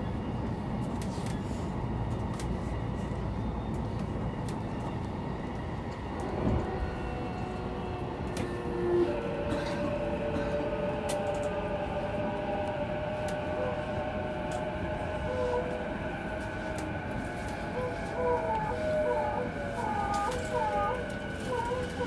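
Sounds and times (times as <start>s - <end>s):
electric train inverter whine: 0.0s - 22.0s
train running noise: 0.0s - 22.0s
wavering tones: 11.2s - 22.0s.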